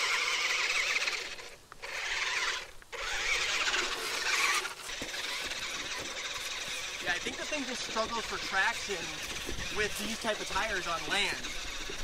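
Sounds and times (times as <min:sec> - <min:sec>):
rc car motor whining with rattle: 0:00.0 - 0:12.0.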